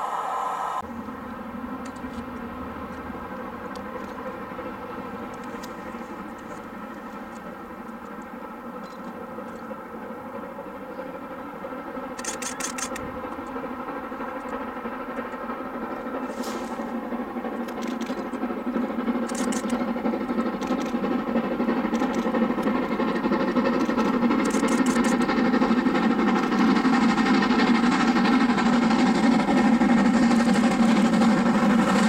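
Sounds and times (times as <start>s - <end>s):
distant steam locomotive drone: 0.0s - 32.0s
high clicking: 17.5s - 26.8s.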